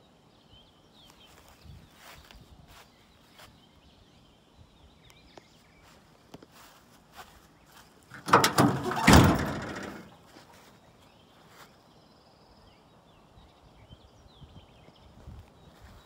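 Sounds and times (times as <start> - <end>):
tailgate banging open: 8.1 - 10.2
tailgate rattle: 8.1 - 10.2.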